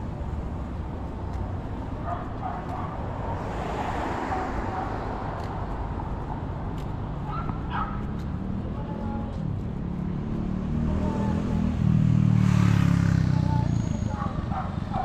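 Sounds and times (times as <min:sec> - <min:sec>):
street traffic rumble: 0:00.0 - 0:15.0
dog yipping: 0:07.2 - 0:08.1, 0:13.6 - 0:15.0.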